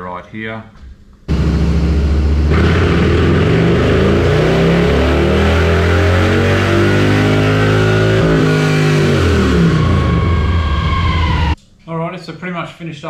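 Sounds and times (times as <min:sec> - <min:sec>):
motorcycle engine revving: 0:01.3 - 0:11.6.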